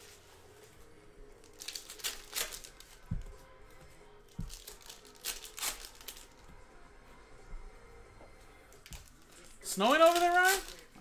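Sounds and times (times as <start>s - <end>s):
foil wrapper crinkling and tearing: 1.4s - 3.1s, 4.4s - 6.5s, 8.8s - 11.0s.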